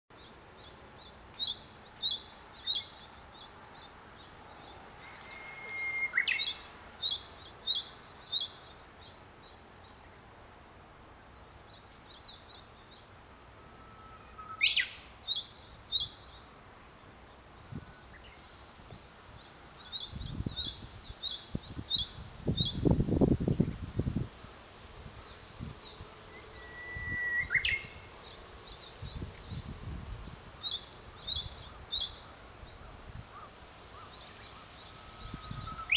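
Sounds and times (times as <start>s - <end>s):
songbirds singing: 0.1s - 35.9s
bird's long level whistle: 4.7s - 8.6s, 10.5s - 16.5s, 19.5s - 23.1s, 25.3s - 35.9s
wind buffeting microphone: 18.8s - 24.4s, 28.7s - 32.1s, 35.1s - 35.9s.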